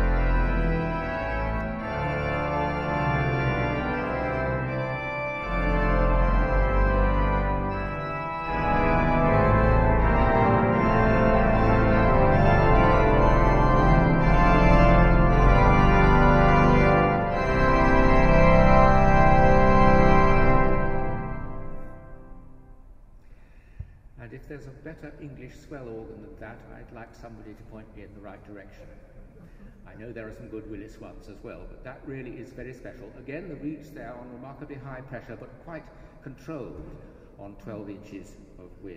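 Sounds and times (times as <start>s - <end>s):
pipe organ sustained chords: 0.0s - 23.0s.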